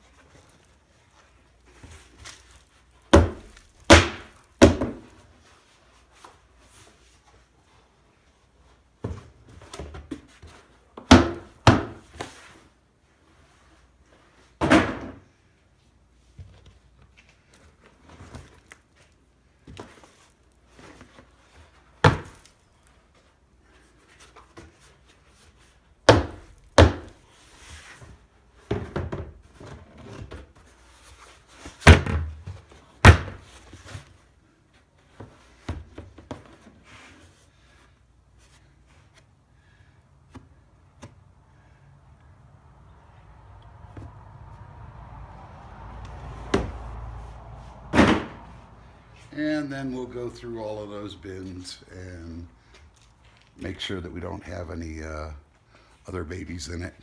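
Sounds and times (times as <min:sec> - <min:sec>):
plastic tubs thunking: 0:03.1 - 0:05.1, 0:11.0 - 0:12.2, 0:14.6 - 0:15.2, 0:26.0 - 0:27.2, 0:28.6 - 0:30.5, 0:31.7 - 0:33.6, 0:46.4 - 0:47.1, 0:47.8 - 0:48.7.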